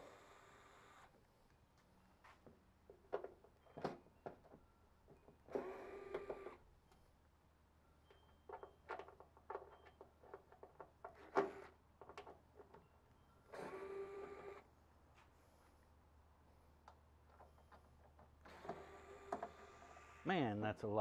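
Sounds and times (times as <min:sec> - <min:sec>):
cordless drill running: 0:05.6 - 0:06.6, 0:13.6 - 0:14.6, 0:18.5 - 0:20.2.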